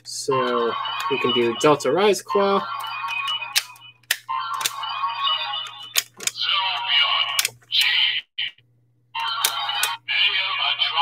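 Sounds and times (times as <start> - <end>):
toy electronic sound effects: 0.3 - 8.5, 9.2 - 11.0
toy handling clicks: 5.6 - 6.5, 7.3 - 8.0.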